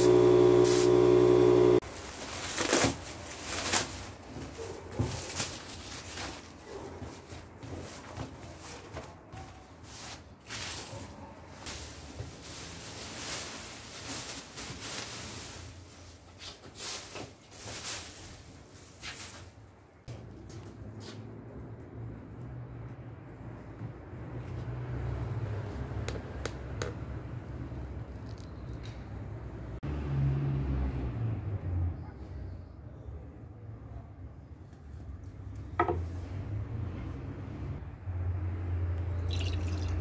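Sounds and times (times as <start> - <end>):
spray gun hissing: 0.0 - 1.5
air compressor humming: 0.0 - 1.8
plastic sheet crinkling: 1.8 - 19.6.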